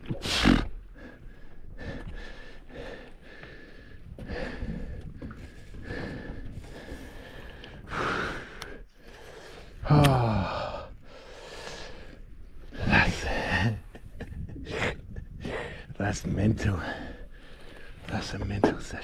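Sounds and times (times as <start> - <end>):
man sighing: 9.8 - 10.9.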